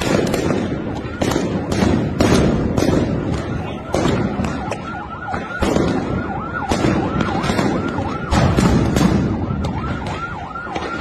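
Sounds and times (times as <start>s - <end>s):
sharp bangs: 0.0s - 11.0s
siren yelping: 3.2s - 11.0s.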